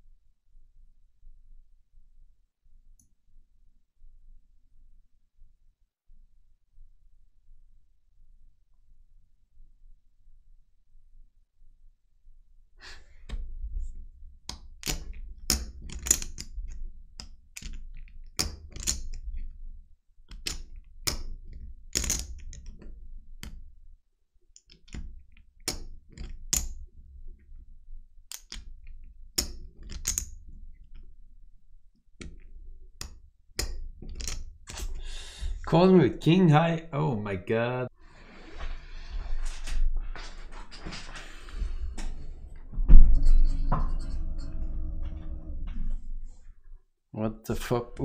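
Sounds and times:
low thuds: 41.8s - 46.4s.

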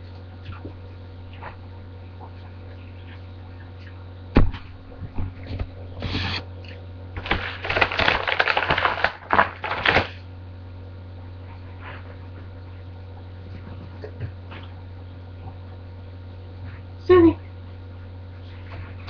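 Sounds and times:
low electrical hum: 0.0s - 19.0s
cookie bag crinkling: 7.2s - 10.2s.

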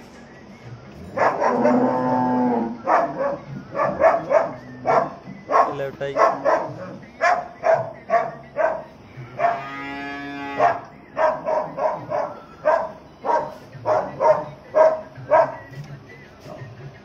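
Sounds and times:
dog barking: 1.2s - 1.8s, 2.9s - 9.6s, 10.6s - 15.6s.

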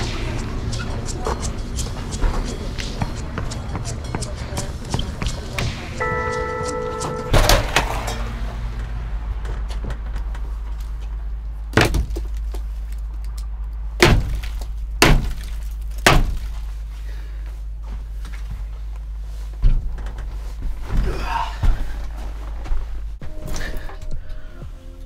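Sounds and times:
steady low rumble: 0.0s - 23.4s.

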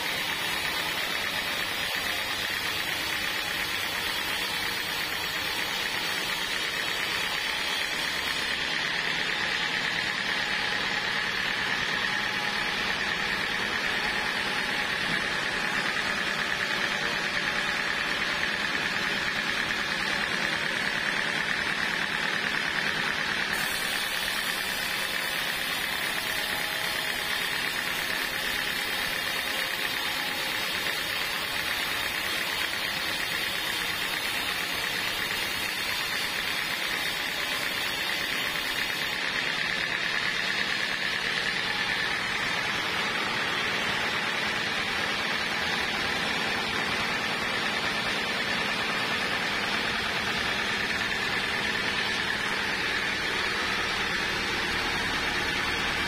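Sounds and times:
band saw cutting wood: 0.0s - 56.0s.

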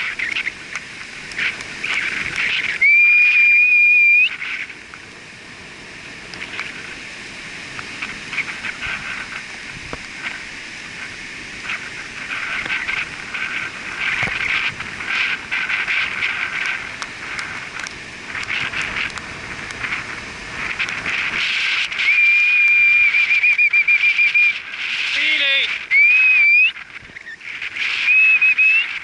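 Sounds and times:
surf hissing on sand: 0.0s - 29.0s
high whistled trill: 2.7s - 4.4s, 22.0s - 24.7s, 25.9s - 29.0s.

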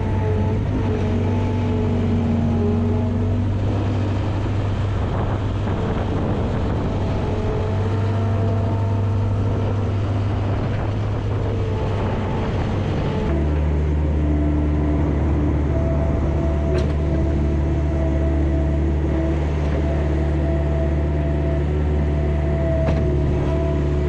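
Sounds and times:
loader engine running under load: 0.0s - 24.0s.

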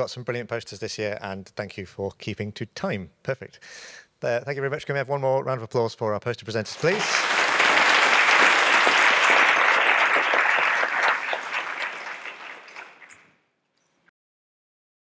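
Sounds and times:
audience applauding: 6.7s - 13.3s.

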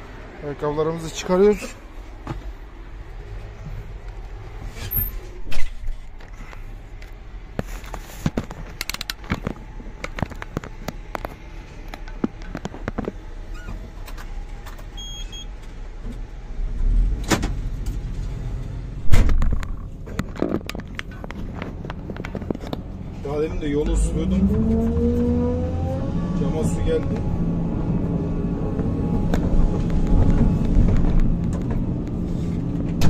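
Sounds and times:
heavy thump: 19.0s - 19.6s.

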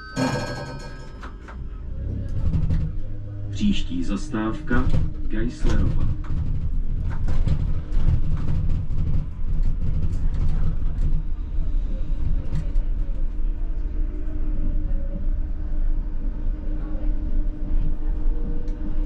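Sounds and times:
constant hum: 0.0s - 19.0s
tram wheels rumbling: 0.0s - 19.0s
clicks and knocks: 0.1s - 1.6s.

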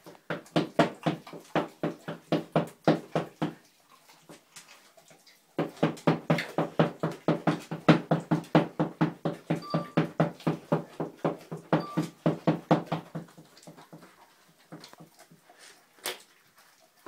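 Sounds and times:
dog licking: 10.0s - 17.0s.

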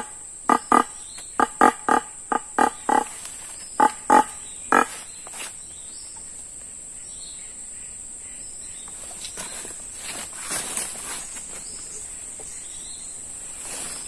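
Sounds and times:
deer caller barking calls: 0.0s - 3.1s, 3.8s - 5.0s
high insect drone: 0.0s - 14.0s.

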